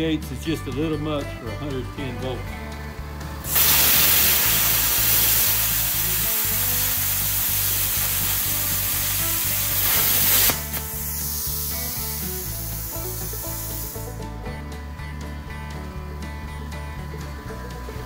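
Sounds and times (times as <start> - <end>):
soft hiss: 3.4 - 14.5
plasma cutter hissing: 3.5 - 14.1.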